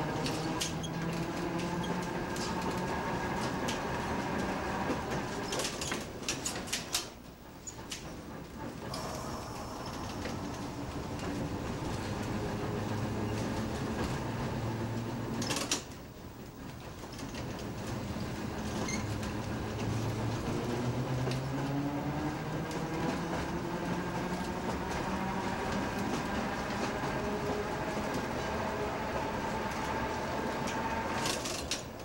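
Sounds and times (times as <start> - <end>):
streetcar wheels rumbling on rails: 0.0 - 32.0
traction motor whine rising: 8.9 - 14.0, 19.1 - 31.5.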